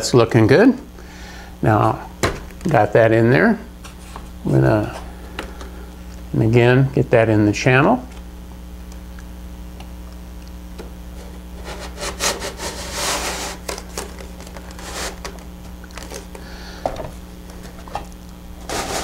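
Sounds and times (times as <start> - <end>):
wooden spar scraping: 11.2 - 15.4, 18.6 - 19.0.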